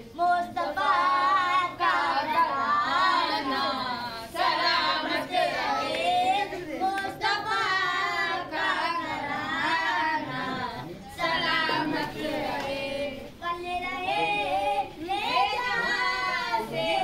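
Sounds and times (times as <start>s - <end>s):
person singing unaccompanied: 0.0s - 17.0s.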